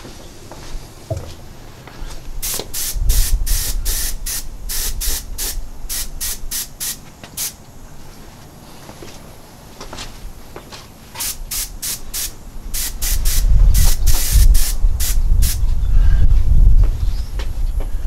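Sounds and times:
airbrush spraying short hisses: 2.4 - 7.6, 11.2 - 15.6.

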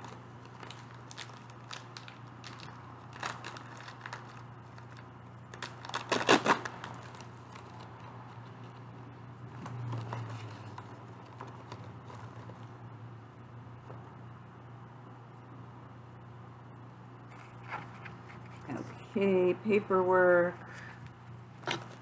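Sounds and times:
package being opened rustling: 0.0 - 8.9, 17.3 - 18.7
steady low hum: 0.0 - 22.0
paper being shuffled: 17.3 - 18.9.

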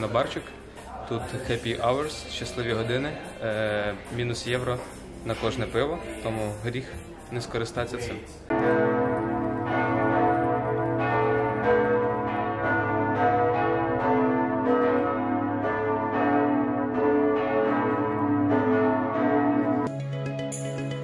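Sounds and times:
background music: 0.0 - 21.0
church bells pealing: 8.5 - 19.9.

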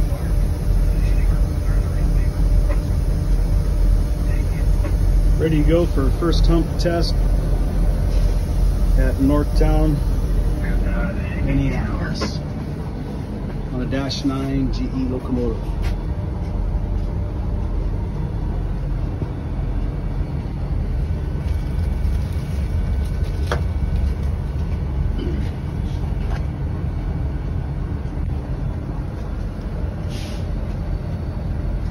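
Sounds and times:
diesel engine rumbling: 0.0 - 31.9.

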